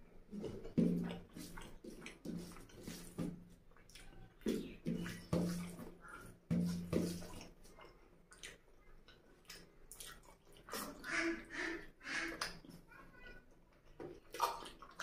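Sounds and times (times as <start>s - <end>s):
wet slurping: 0.0s - 8.6s, 9.4s - 12.8s, 14.2s - 15.0s
wet chewing and mouth smacking: 0.0s - 11.2s, 13.5s - 15.0s.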